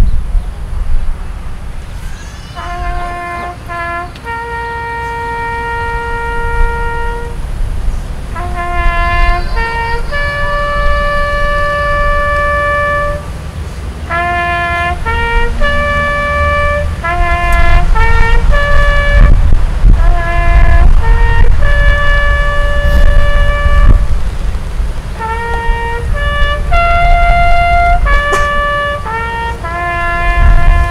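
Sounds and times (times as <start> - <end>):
bugle playing: 2.5 - 30.9
low rumble: 15.0 - 29.1.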